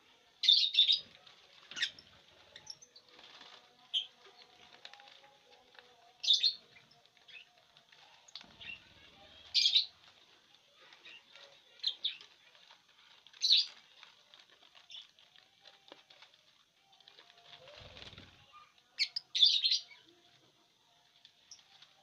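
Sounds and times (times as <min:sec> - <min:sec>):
lovebirds chirping: 0:00.3 - 0:05.6, 0:06.2 - 0:12.4
wings fluttering: 0:07.2 - 0:18.7.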